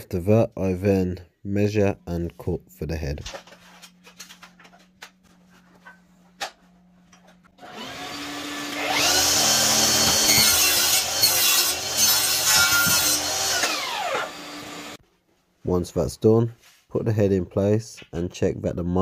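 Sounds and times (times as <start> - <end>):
mitre saw cutting wood: 7.6 - 15.0.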